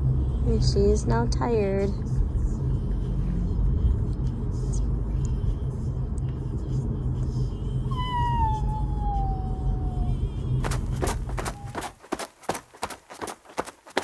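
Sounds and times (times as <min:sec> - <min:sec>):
car road rumble: 0:00.0 - 0:14.0
puppy whining: 0:07.9 - 0:10.4, 0:11.0 - 0:12.0.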